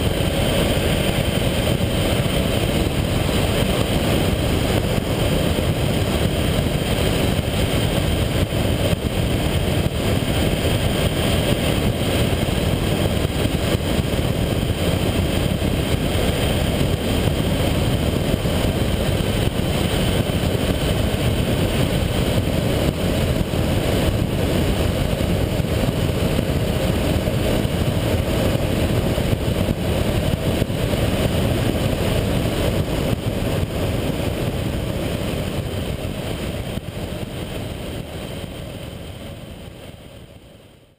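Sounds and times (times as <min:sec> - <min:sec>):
motorcycle engine running: 0:00.0 - 0:39.5
wind and road noise: 0:00.0 - 0:40.9.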